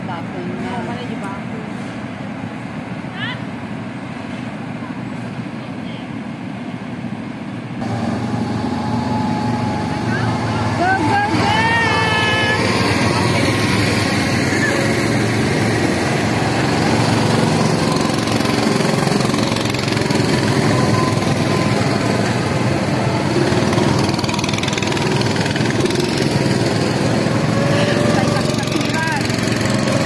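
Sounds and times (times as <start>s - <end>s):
go-kart engines driving past: 7.8s - 30.0s.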